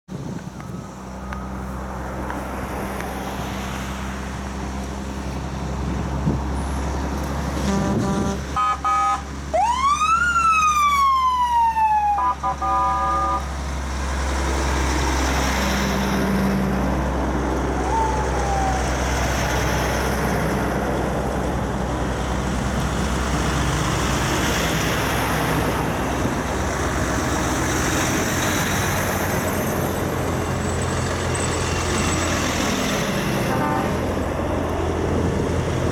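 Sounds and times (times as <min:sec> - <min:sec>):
trucks driving past: 0:00.1 - 0:35.9
air horn blasts: 0:07.6 - 0:09.3, 0:12.2 - 0:13.5, 0:33.4 - 0:34.1
siren wailing: 0:08.6 - 0:13.4, 0:17.7 - 0:19.4.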